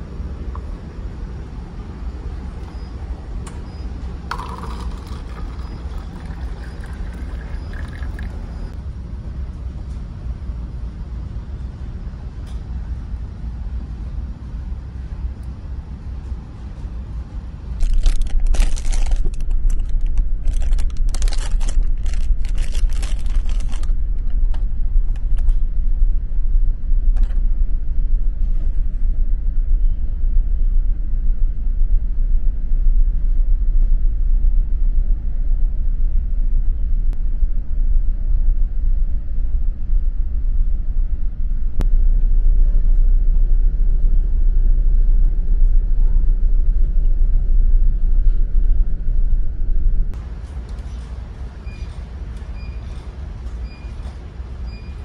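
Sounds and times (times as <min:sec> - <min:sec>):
ship engines rumbling: 0:00.0 - 0:08.8
plastic wrapper crinkling: 0:17.8 - 0:24.0.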